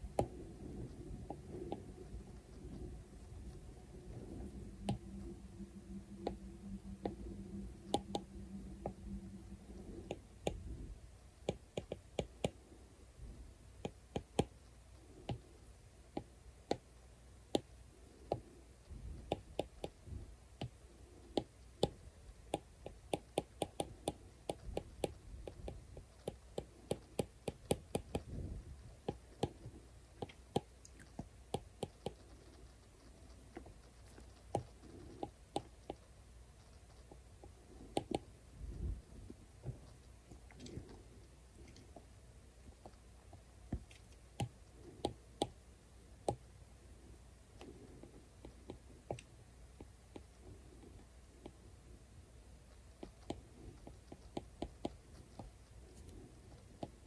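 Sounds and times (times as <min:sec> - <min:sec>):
low steady hum: 0:00.0 - 0:57.0
stylus tapping on glass screen: 0:06.2 - 0:09.0.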